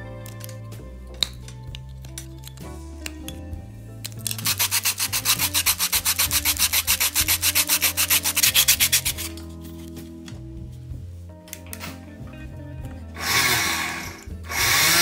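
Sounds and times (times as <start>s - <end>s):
metal scraping on sanding disc: 4.3s - 9.4s.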